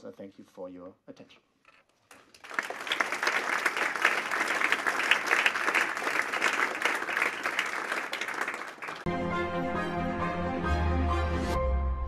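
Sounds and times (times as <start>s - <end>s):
audience applauding: 2.1s - 9.1s.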